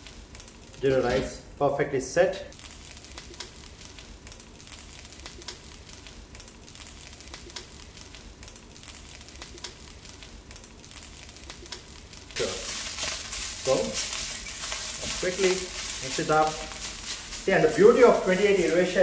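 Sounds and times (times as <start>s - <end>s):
rice sizzling in a pan: 2.5s - 19.0s
spatula stirring rice: 12.4s - 19.0s.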